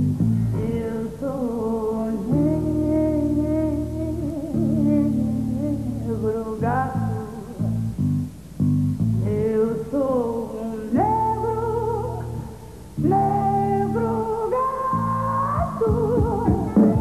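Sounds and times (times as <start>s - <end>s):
dance music with bass and guitar: 15.3s - 17.0s.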